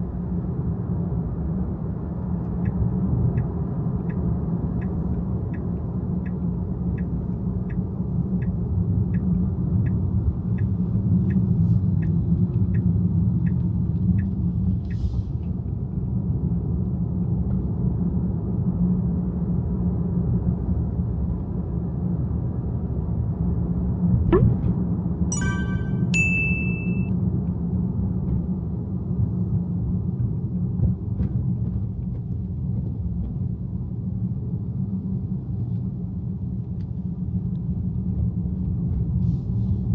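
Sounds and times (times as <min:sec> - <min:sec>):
road and engine rumble inside car: 0:00.0 - 0:24.8, 0:27.2 - 0:39.9
quick rising sweep: 0:24.3 - 0:24.7
short high beeps: 0:25.3 - 0:27.1.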